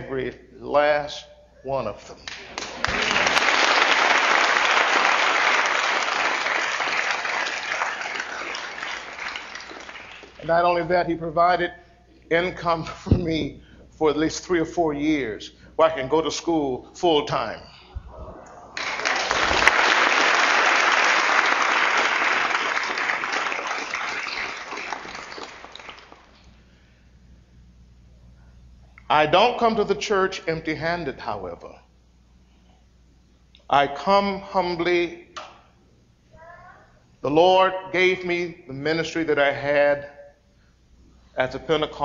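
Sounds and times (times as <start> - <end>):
audience applauding: 2.3 - 10.5, 18.4 - 26.4.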